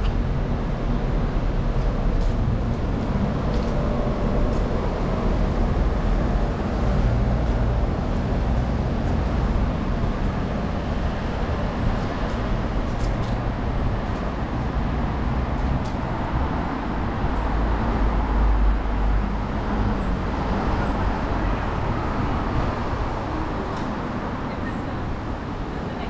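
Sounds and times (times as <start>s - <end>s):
buses and cars passing close: 0.0s - 26.0s
road traffic rumble: 0.0s - 26.0s.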